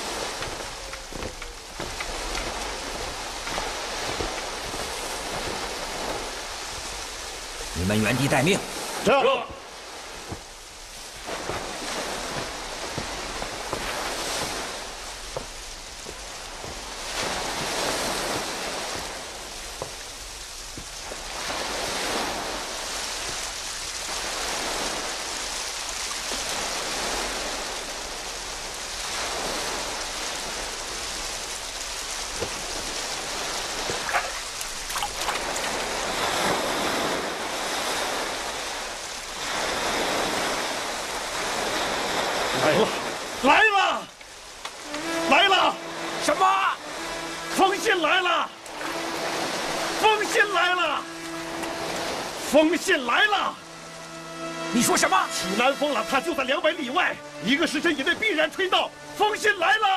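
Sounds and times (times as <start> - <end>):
sea surf breaking on beach: 0.0 - 59.9
wind: 0.0 - 59.9.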